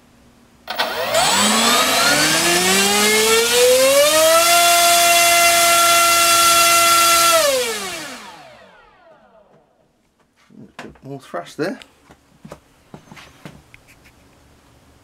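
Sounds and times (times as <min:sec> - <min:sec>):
electric motor whine with propeller: 0:00.7 - 0:09.1.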